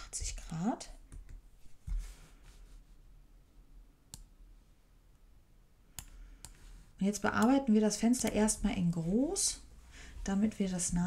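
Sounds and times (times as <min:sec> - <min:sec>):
soft rustle: 0:01.5 - 0:03.2
computer mouse clicks: 0:04.1 - 0:04.3, 0:05.9 - 0:06.6, 0:07.3 - 0:07.6.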